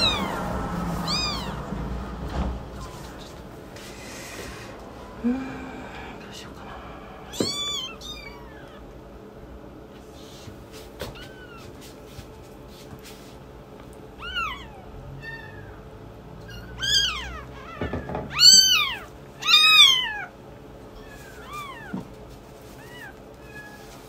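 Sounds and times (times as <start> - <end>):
kittens mewing: 0.0 - 2.0, 4.2 - 9.0, 10.2 - 11.8, 14.0 - 24.0.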